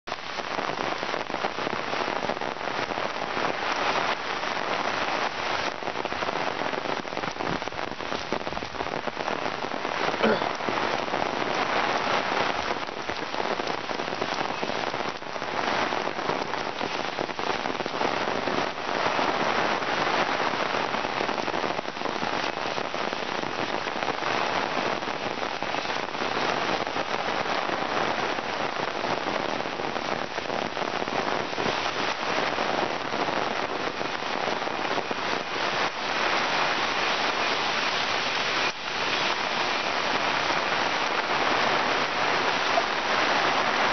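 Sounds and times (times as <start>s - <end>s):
heavy rain on forest: 0.0s - 43.9s.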